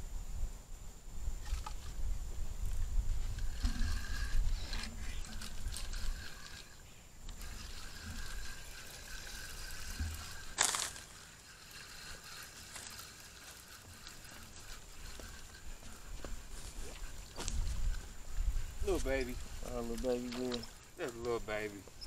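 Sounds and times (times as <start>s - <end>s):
wind rumble on microphone: 0.0s - 6.6s, 15.3s - 20.6s
faint riverside noise: 0.0s - 22.0s.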